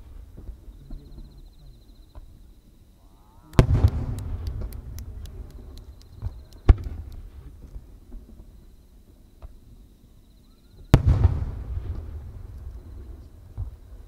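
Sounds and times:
sharp firework bang: 3.6s - 4.9s, 10.9s - 12.5s.

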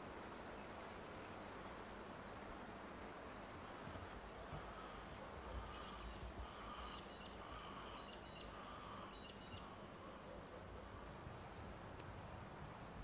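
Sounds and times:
faint background hiss: 0.0s - 13.0s
bird chirping: 5.6s - 9.8s.

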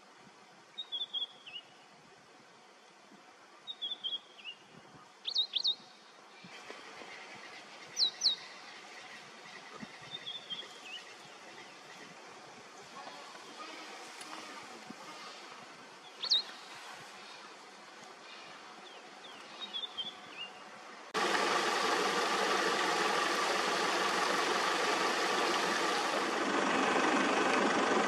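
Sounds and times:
soft steady hiss: 0.0s - 26.3s
birds twittering: 6.8s - 13.9s, 16.0s - 17.6s, 18.2s - 20.7s.

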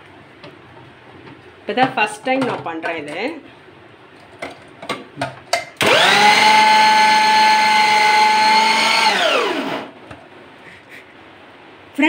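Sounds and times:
motor winding down: 5.8s - 9.9s
food processor motor whining: 5.8s - 10.0s.

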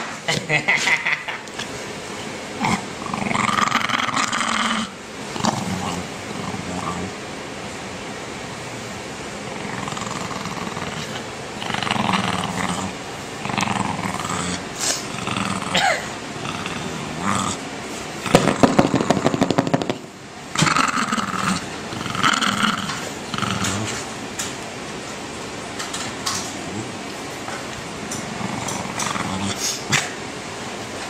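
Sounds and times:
dog growling: 2.5s - 7.2s, 9.4s - 24.2s, 26.4s - 30.2s.

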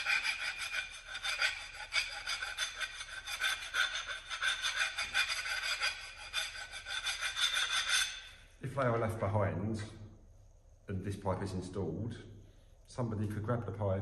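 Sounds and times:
file rasping on steel pipe: 0.0s - 8.4s.

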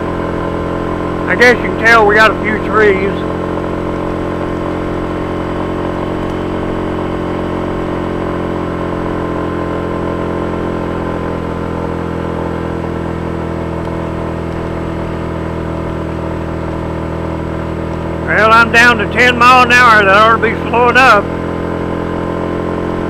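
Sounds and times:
scooter engine under load: 0.0s - 23.0s.

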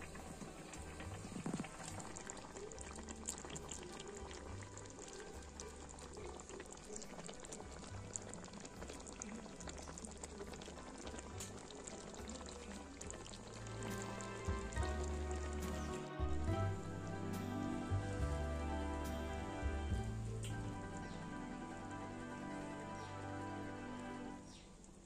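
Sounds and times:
sauce bubbling and popping: 0.0s - 18.3s.

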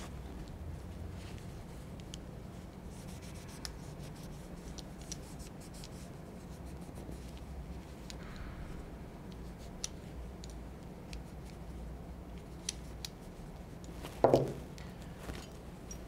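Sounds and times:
loud knock: 14.2s - 14.6s.

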